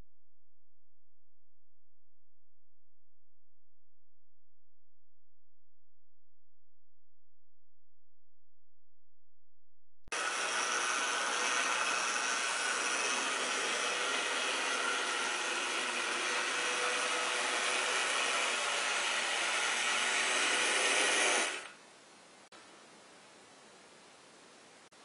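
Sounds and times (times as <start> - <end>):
model locomotive motor whirring: 10.2 - 21.8.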